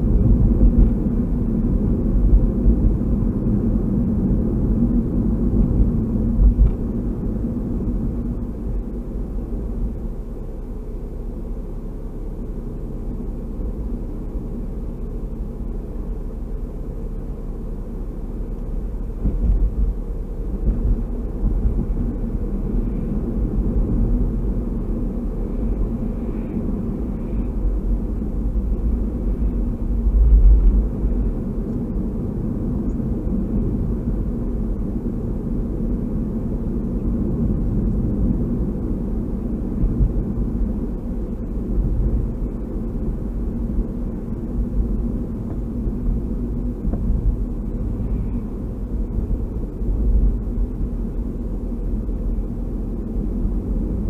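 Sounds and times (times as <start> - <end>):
low bumps: 0.0 - 10.0, 18.9 - 36.0, 36.7 - 51.4
car road and engine rumble: 0.0 - 54.0.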